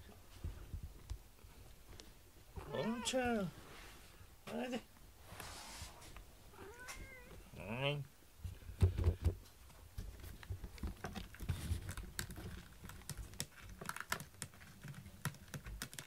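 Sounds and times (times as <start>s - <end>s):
cat claws scratching pad: 10.1s - 16.0s.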